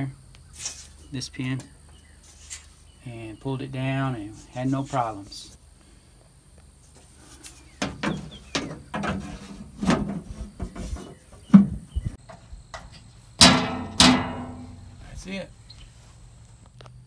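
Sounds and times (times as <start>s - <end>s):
thin metal knocking and rattling: 12.8s - 15.0s
ringing metal clang: 13.4s - 15.2s.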